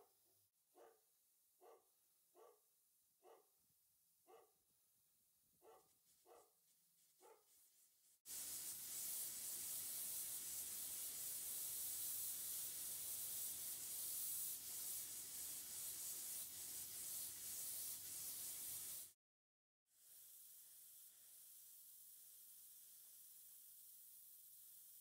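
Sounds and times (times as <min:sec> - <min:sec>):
compressed air hissing from sprinkler: 0:07.1 - 0:19.2, 0:20.0 - 0:25.0.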